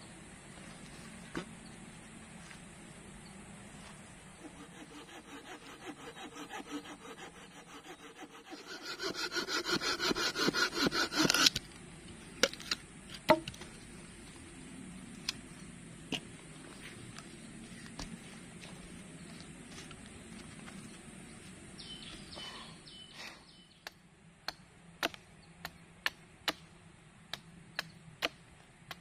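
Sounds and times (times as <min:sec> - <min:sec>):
hand saw cutting wood: 0:04.4 - 0:11.6.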